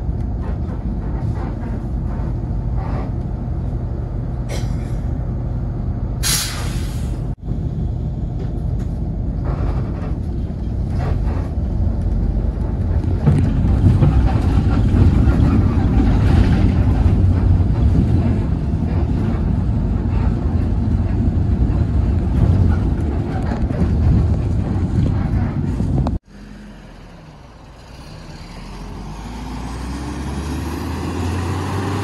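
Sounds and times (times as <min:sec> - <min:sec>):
bus engine and road rumble: 0:00.0 - 0:32.0
bus pulling away: 0:00.0 - 0:32.0.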